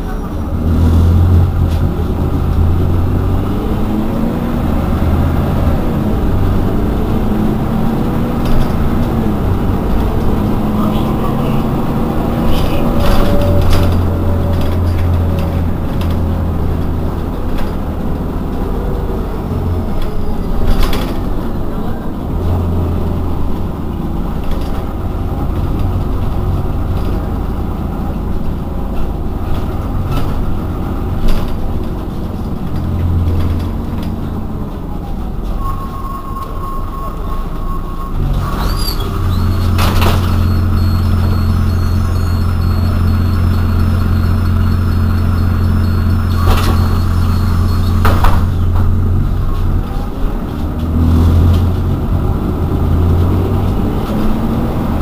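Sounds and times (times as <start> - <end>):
bus engine idling: 0.0 - 55.0.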